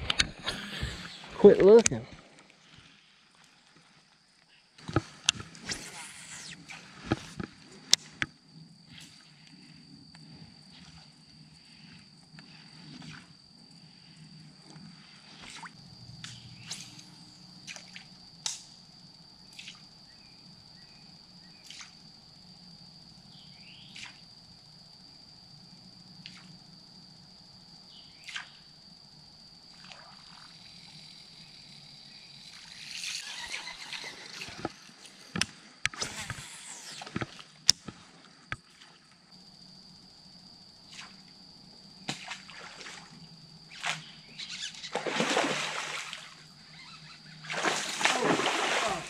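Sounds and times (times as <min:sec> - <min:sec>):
steady high whine: 0:00.0 - 0:02.6
water splashing: 0:44.9 - 0:46.3, 0:47.5 - 0:49.0
water sloshing and dripping: 0:44.9 - 0:46.4, 0:47.4 - 0:49.0.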